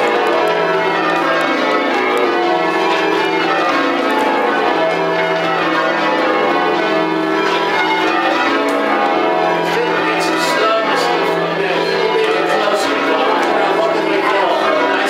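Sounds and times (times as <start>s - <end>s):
church bells ringing: 0.0s - 15.0s.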